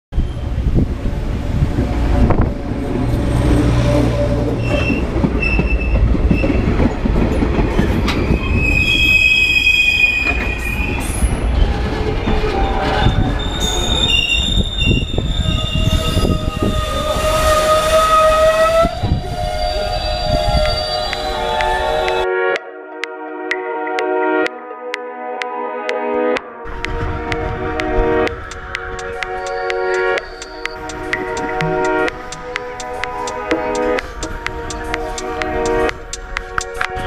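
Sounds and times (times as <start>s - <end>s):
train wheels rumbling on rails: 0.2s - 22.2s, 26.7s - 37.0s
high-pitched metallic brake squeals: 4.5s - 6.6s, 7.8s - 11.7s, 12.5s - 22.2s, 29.0s - 31.6s.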